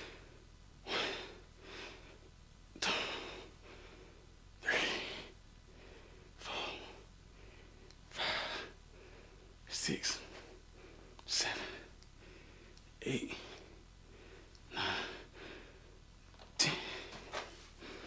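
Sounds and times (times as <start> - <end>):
man breathing hard: 0.0 - 16.0, 16.6 - 18.0.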